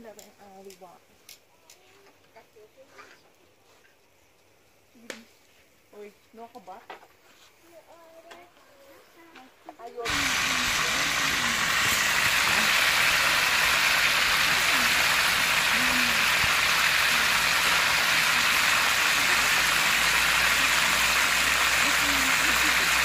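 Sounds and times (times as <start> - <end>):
fish sizzling in hot oil: 10.0 - 23.0.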